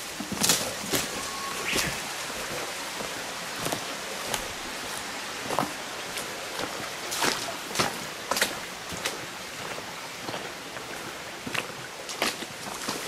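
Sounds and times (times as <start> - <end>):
footsteps crunching on leaves: 0.0 - 8.5
stream running over stones: 0.0 - 13.0.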